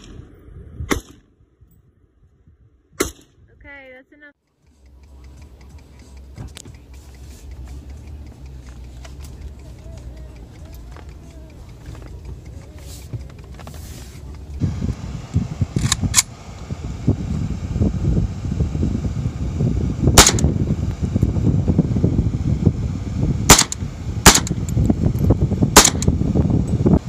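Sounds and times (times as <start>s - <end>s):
heavy low rumble: 0.0s - 3.8s, 4.6s - 27.0s
rifle shots: 20.2s - 20.5s, 23.5s - 24.6s, 25.8s - 26.1s.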